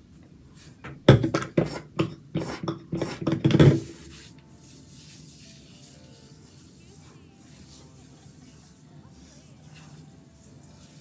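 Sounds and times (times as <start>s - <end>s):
foam pump bottle pumping: 0.8s - 5.4s.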